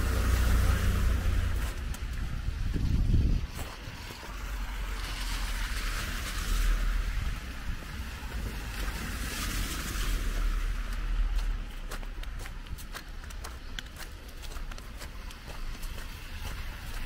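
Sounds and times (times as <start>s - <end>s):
wind rumble on microphone: 0.0s - 17.0s
tyres hissing through slush: 3.3s - 11.9s, 14.6s - 17.0s.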